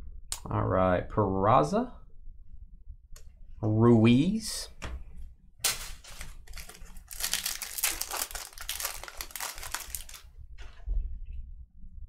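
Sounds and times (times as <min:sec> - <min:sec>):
foil wrapper tearing and crinkling: 0:05.6 - 0:10.3.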